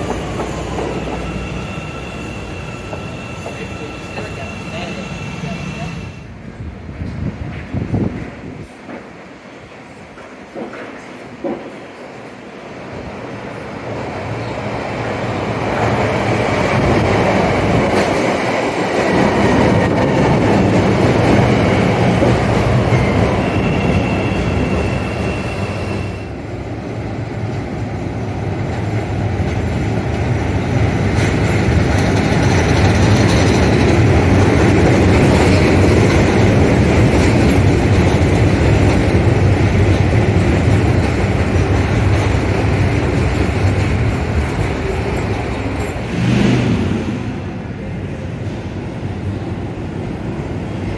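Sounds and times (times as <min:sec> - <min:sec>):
high wheel squeal: 0:00.0 - 0:06.2, 0:22.9 - 0:26.4
train wheels rumbling on rails: 0:00.0 - 0:50.9.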